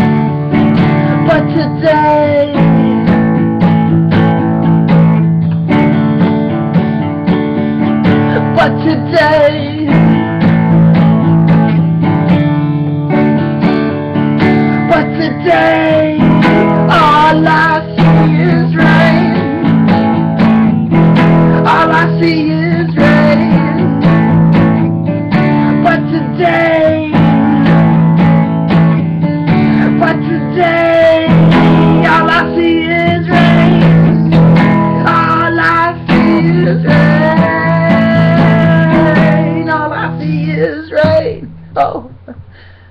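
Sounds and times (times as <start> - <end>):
acoustic guitar strumming: 0.0 - 42.9
man singing: 0.8 - 3.2, 8.2 - 10.3, 14.6 - 19.9, 21.2 - 24.2, 25.3 - 28.4, 29.4 - 42.4.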